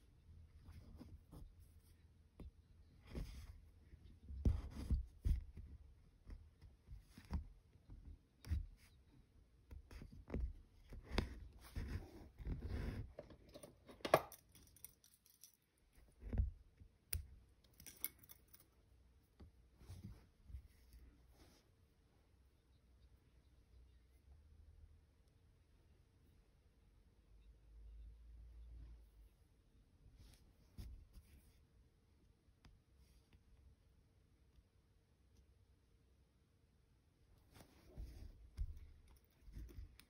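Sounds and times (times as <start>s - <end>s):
needle and thread through fabric: 0.0s - 24.2s, 28.7s - 31.9s, 37.4s - 40.0s.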